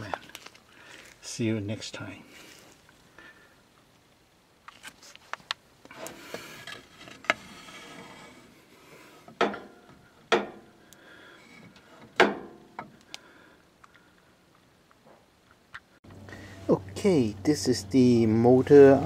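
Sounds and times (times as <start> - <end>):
wooden boards scraping: 5.9 - 9.9.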